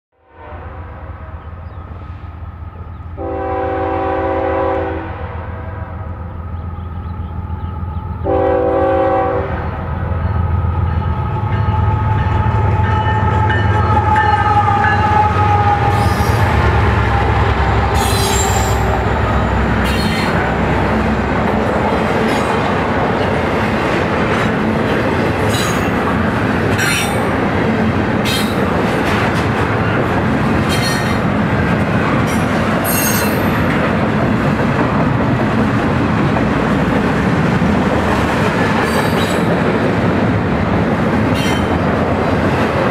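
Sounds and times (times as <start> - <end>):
train horn blasts: 0.2 - 1.4, 3.2 - 6.2, 8.2 - 9.9, 10.8 - 20.4
locomotive engines rumbling: 0.8 - 42.9.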